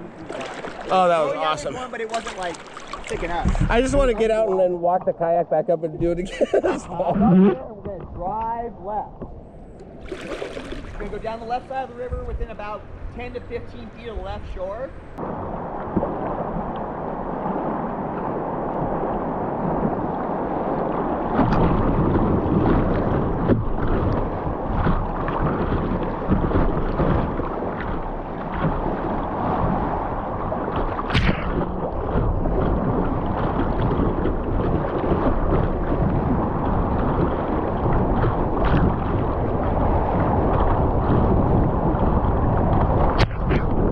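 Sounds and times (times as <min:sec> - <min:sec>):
whitewater rushing and splashing: 0:00.0 - 0:05.3, 0:10.0 - 0:12.8.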